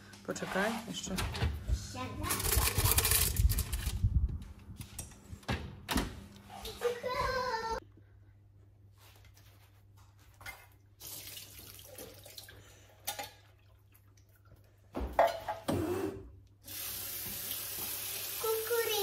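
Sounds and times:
tap water running into sink: 16.7 - 19.0.

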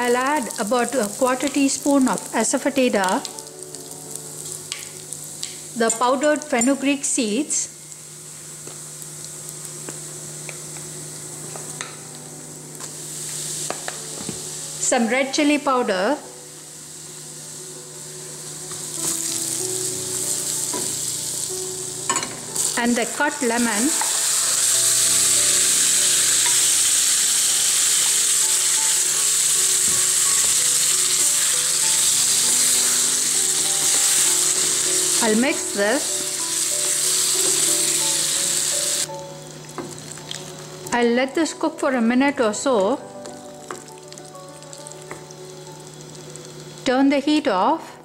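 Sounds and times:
oil sizzling in a pan: 0.0 - 41.1, 42.6 - 47.5.

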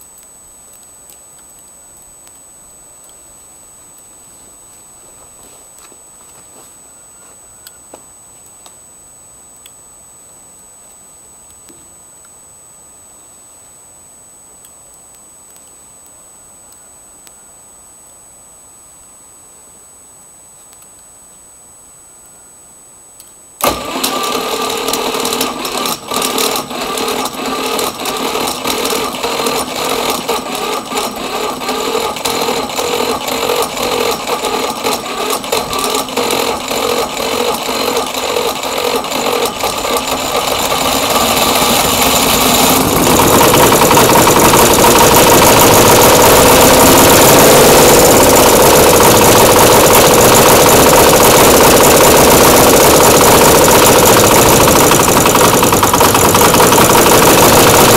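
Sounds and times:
motorbike engine running roughly: 23.6 - 57.9.

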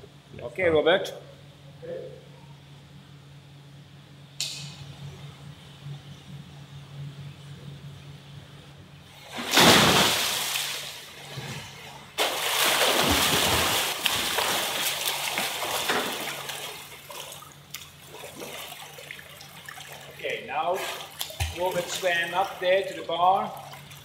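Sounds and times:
swimmer splashing strokes: 9.2 - 11.4, 12.2 - 24.0
loud water splash: 9.3 - 11.1, 12.2 - 16.9.

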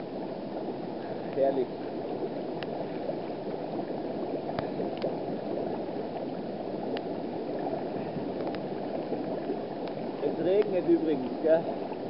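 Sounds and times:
water bubbling from air jets: 0.0 - 12.0
faint clicks: 2.6 - 2.8, 4.5 - 5.2, 6.9 - 7.1, 8.1 - 8.7, 9.8 - 11.4.

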